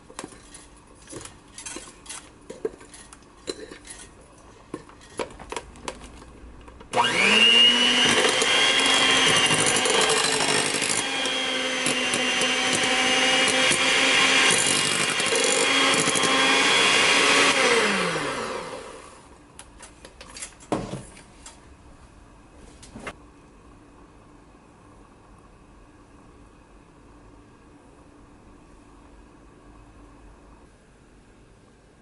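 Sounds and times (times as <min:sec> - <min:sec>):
electric hand mixer whirring: 0:06.9 - 0:19.2.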